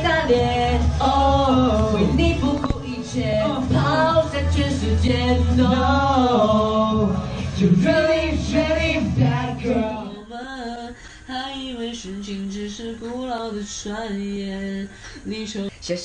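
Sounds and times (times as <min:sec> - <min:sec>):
backing track with bass beat: 0:00.0 - 0:10.2
young man singing pop song: 0:00.0 - 0:16.0.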